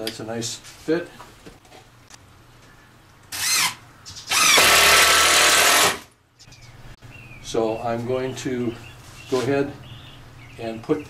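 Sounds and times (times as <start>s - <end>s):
cordless drill running: 3.3s - 6.1s.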